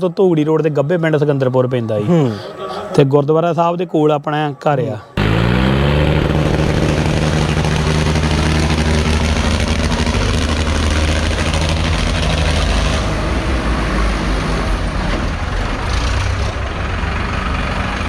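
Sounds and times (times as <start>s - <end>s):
tractor diesel engine revving: 5.2s - 18.0s.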